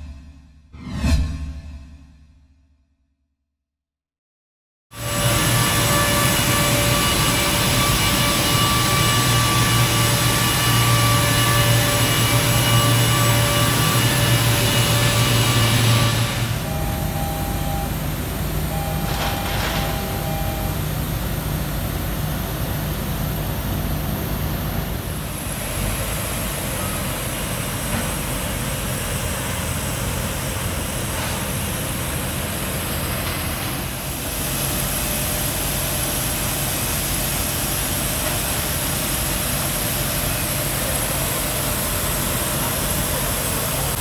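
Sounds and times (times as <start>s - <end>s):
aircraft engine whine and rumble: 5.0s - 44.0s.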